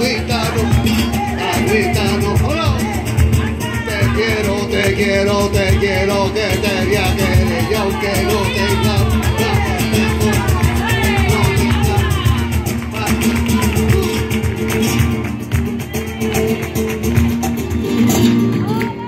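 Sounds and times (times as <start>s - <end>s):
voices singing: 0.0s - 14.7s
flamenco guitars and cajon: 0.0s - 19.0s.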